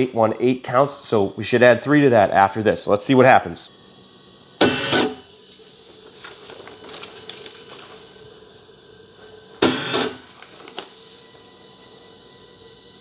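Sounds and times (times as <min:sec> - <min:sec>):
faint mechanical whirr: 0:00.0 - 0:13.0
printer mechanism burst: 0:04.6 - 0:05.2, 0:09.6 - 0:10.3.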